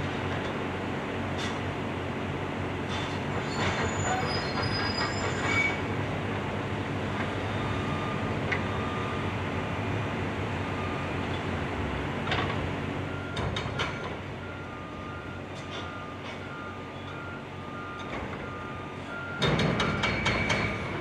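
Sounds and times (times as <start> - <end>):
diesel excavators running: 0.0 - 21.0
metallic squeals and clanks: 3.0 - 5.9.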